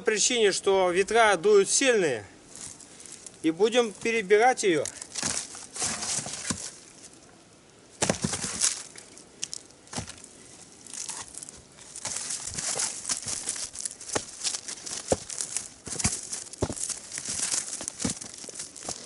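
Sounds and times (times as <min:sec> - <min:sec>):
rustling and crunching in snow: 0:02.5 - 0:07.2, 0:08.0 - 0:19.0
wooden logs knocking and clattering: 0:04.8 - 0:06.9, 0:08.0 - 0:10.3, 0:10.9 - 0:19.0.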